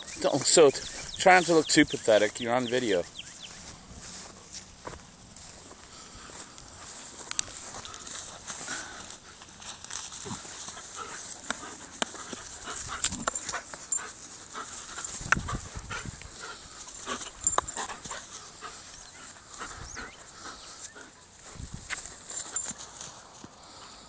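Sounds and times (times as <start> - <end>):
dog panting: 10.2 - 24.0.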